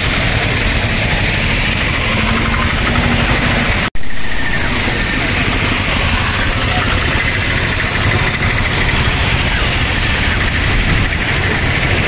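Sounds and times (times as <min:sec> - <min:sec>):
motor traffic: 0:00.0 - 0:12.0
rushing floodwater: 0:00.0 - 0:12.0.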